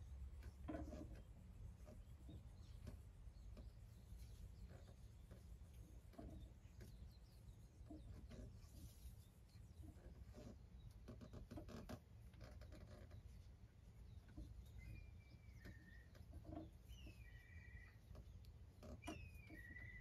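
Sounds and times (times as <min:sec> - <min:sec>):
whistled bird calls: 0:14.7 - 0:16.2, 0:16.9 - 0:18.0, 0:19.0 - 0:20.0.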